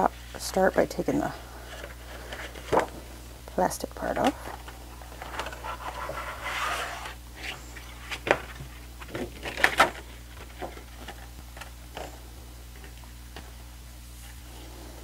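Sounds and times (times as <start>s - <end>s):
book being handled: 4.2s - 12.1s.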